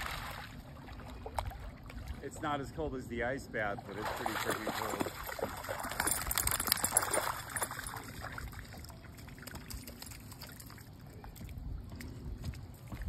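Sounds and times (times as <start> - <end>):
dog splashing in water: 3.8 - 11.0.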